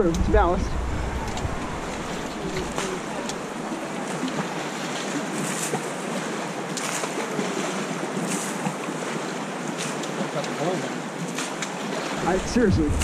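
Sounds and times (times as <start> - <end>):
river rapids rushing: 0.0 - 13.0.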